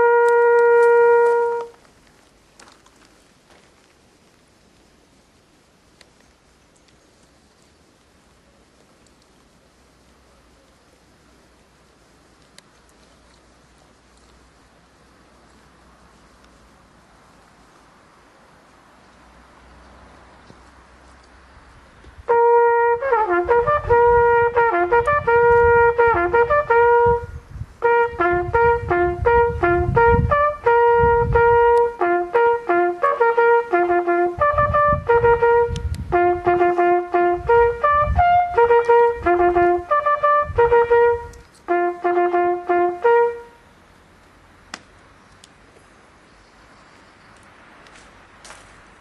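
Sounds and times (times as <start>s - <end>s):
solo bugle call: 0.0s - 1.8s, 22.3s - 43.7s.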